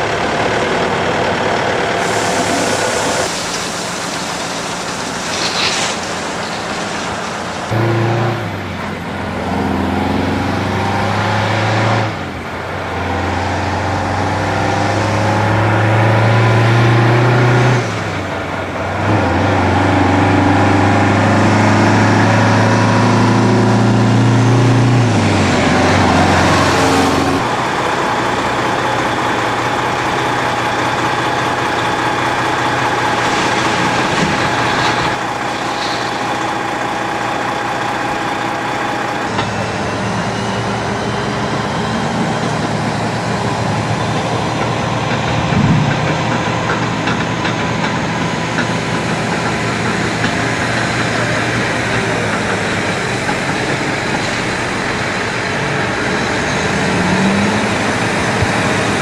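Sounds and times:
diesel truck engine pulling hard: 0.0 - 59.0.

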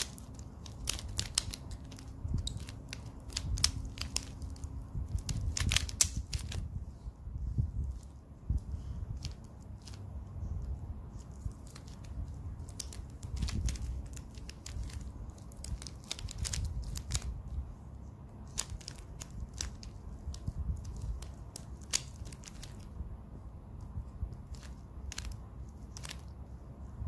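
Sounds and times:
puzzle cube clicking: 0.0 - 6.6, 11.7 - 17.4, 18.5 - 22.9, 24.4 - 26.3.

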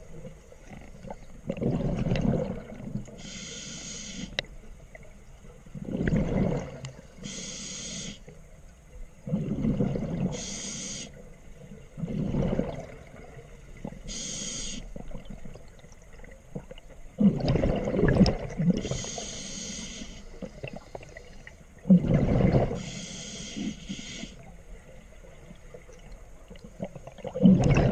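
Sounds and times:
exhaled bubbles rumbling: 0.0 - 3.1, 5.7 - 7.0, 9.2 - 10.4, 11.8 - 14.1, 14.9 - 19.1, 20.4 - 22.9, 24.8 - 27.9
regulator air hiss: 3.2 - 4.4, 7.2 - 8.3, 10.4 - 11.2, 14.1 - 14.9, 18.8 - 21.4, 22.8 - 24.5.

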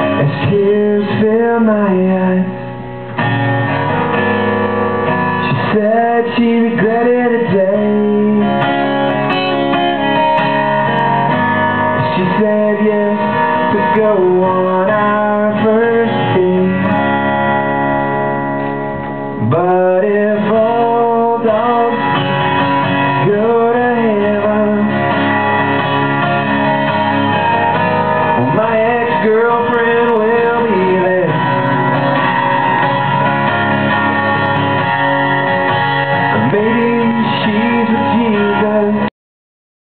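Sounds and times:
man singing: 0.0 - 2.9, 5.4 - 9.4, 11.9 - 17.2, 19.3 - 25.3, 28.3 - 31.9, 36.1 - 39.1
strummed acoustic guitar: 0.0 - 39.1.

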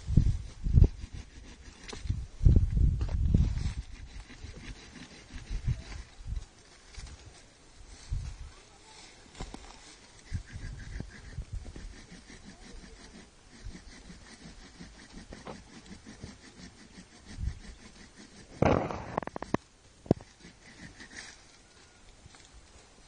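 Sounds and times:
foliage rustling: 0.0 - 23.0
stems cut and snapped: 9.3 - 9.8.

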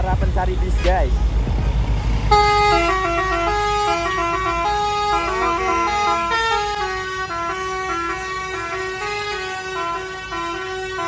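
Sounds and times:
low vehicle rumble: 0.0 - 11.0
multi-tone musical air horn: 2.3 - 11.0.

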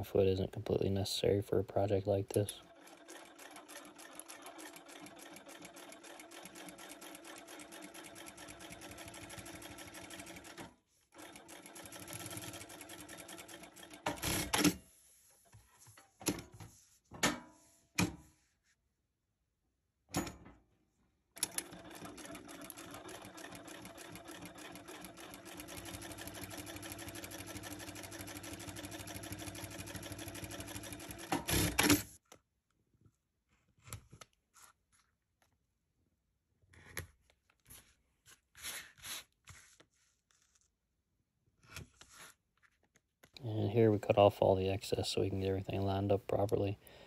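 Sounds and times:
sewing machine running: 2.6 - 10.6, 11.2 - 14.7, 21.4 - 32.1.

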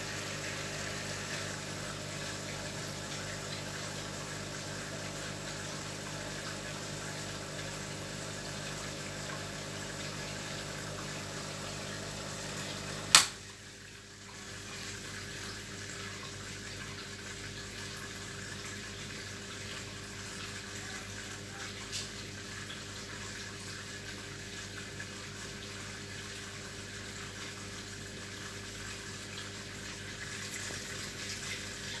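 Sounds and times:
pump humming: 0.0 - 32.0
sharp click: 13.1 - 13.4.

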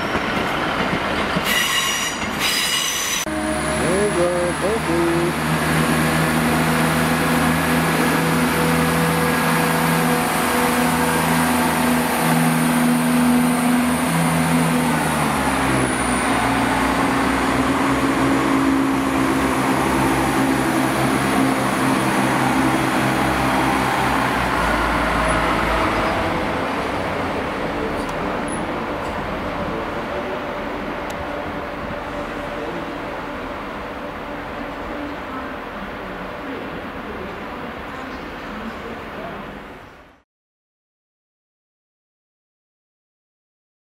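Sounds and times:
diesel train engine drone: 0.1 - 39.9.

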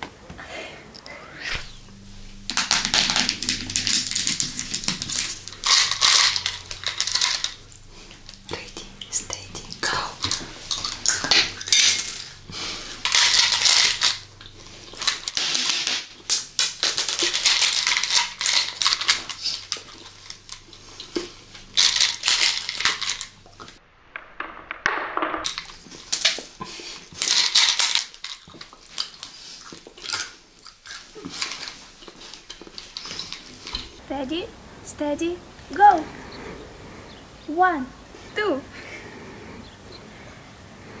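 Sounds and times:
chewing and crunching candies: 2.5 - 23.8, 25.4 - 34.0.

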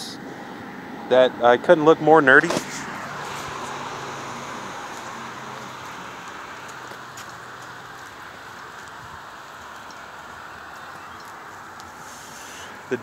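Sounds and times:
highway traffic hiss: 0.0 - 13.0.

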